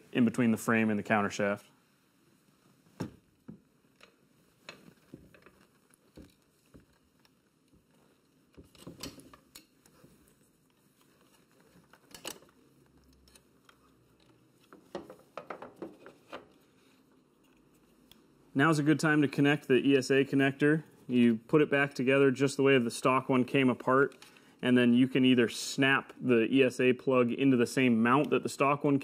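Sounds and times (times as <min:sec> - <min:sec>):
faint clicks taps and rustles: 0:02.6 - 0:18.4.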